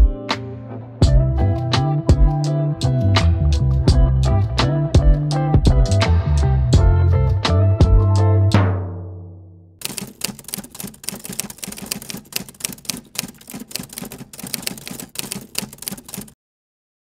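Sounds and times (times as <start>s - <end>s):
typewriter keys clacking: 9.8s - 16.4s.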